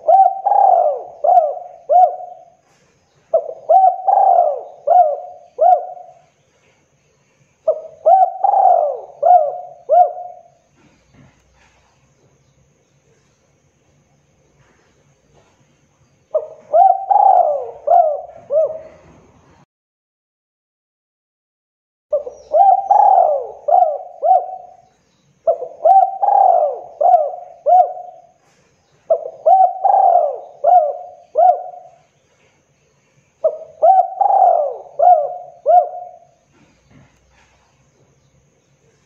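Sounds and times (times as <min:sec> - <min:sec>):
dove cooing: 0:00.0 - 0:06.4, 0:07.6 - 0:11.9, 0:16.3 - 0:19.4, 0:22.1 - 0:32.5, 0:33.4 - 0:37.6.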